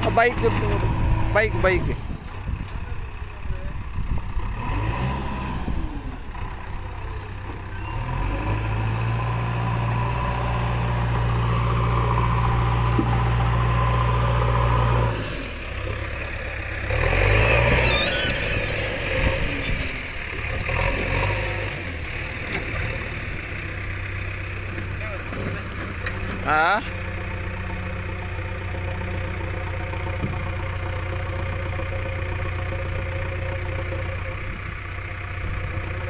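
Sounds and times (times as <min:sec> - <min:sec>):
diesel engine revving: 0:00.0 - 0:36.0
diesel engines running: 0:00.0 - 0:36.0.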